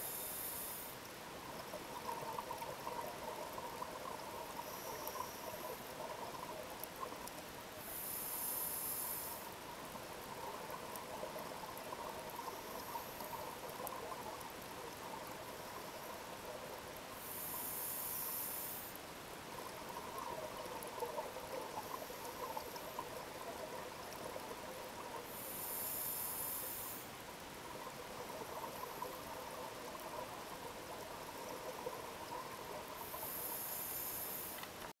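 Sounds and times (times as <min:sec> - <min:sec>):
regulator inhalation hiss: 0:00.0 - 0:01.0, 0:07.8 - 0:09.6, 0:17.2 - 0:19.0, 0:25.3 - 0:27.1, 0:33.0 - 0:34.7.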